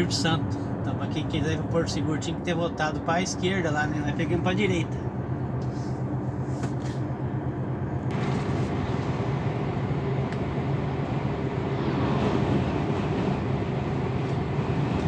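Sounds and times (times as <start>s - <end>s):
road noise rushing: 0.0s - 15.0s
vehicle engine drone: 0.0s - 15.0s
truck passing: 4.9s - 15.0s.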